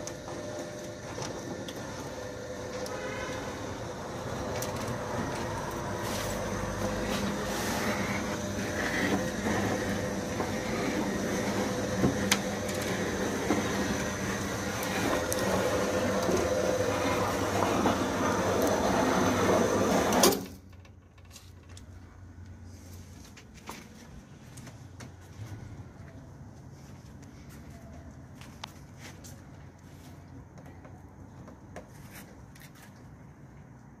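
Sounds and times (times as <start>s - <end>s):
door motor humming and whining: 0.0s - 20.6s.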